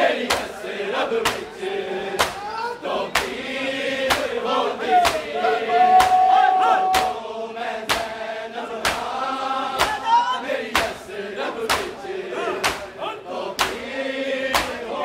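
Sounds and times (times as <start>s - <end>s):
men chanting in unison: 0.0s - 15.0s
chest-beating slaps: 0.2s - 0.6s, 1.2s - 1.6s, 2.2s - 2.5s, 3.1s - 3.4s, 4.0s - 4.4s, 5.0s - 5.3s, 6.0s - 6.2s, 6.9s - 7.2s, 7.9s - 8.2s, 8.8s - 9.2s, 9.8s - 10.1s, 10.7s - 11.0s, 11.7s - 12.0s, 12.6s - 13.0s, 13.6s - 13.9s, 14.5s - 14.8s.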